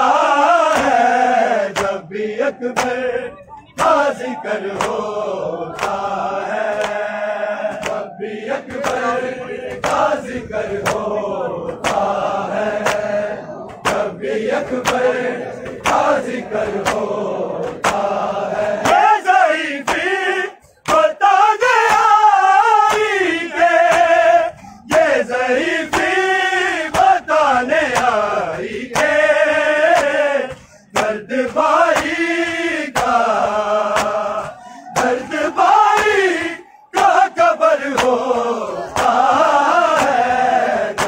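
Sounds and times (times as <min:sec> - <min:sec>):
crowd of men chanting: 0:00.0 - 0:41.0
hands slapping chests: 0:00.6 - 0:02.0, 0:02.7 - 0:03.1, 0:03.8 - 0:19.2, 0:19.8 - 0:20.2, 0:20.8 - 0:21.1, 0:21.8 - 0:22.2, 0:22.8 - 0:23.2, 0:23.8 - 0:24.2, 0:24.9 - 0:25.2, 0:25.8 - 0:26.3, 0:27.8 - 0:37.3, 0:37.9 - 0:41.0.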